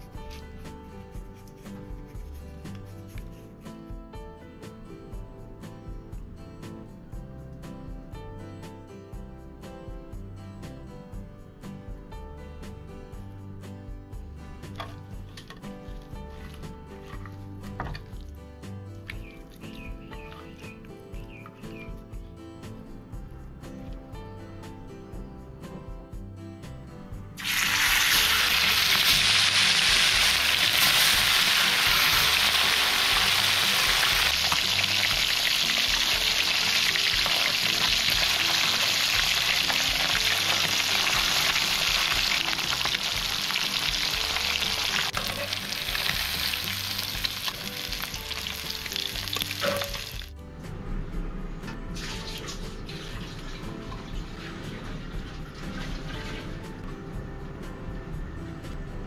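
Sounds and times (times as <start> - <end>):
background music: 0.0 - 59.0
fish sizzling in hot oil: 27.4 - 50.3.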